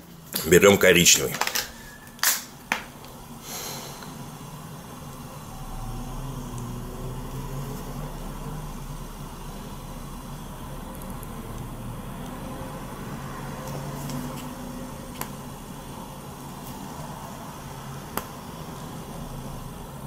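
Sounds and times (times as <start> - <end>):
low background hum: 0.0 - 20.0.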